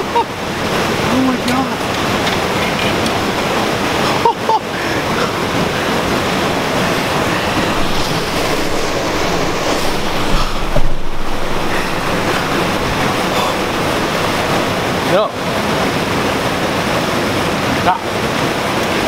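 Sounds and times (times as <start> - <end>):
creek water rushing over rocks: 0.0 - 19.0
brief low thump: 7.6 - 14.6.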